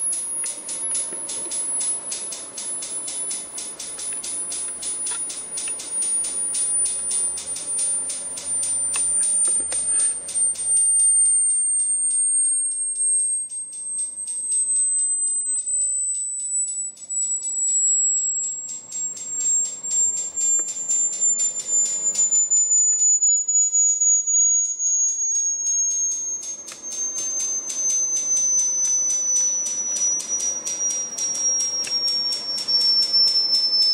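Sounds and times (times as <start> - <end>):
fast even pulsing: 0.0 - 12.2, 25.0 - 33.9
electronic tone sweeping down: 0.9 - 33.9.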